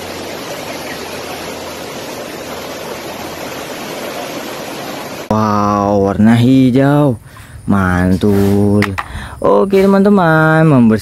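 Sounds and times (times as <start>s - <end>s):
river rushing: 0.0s - 5.4s.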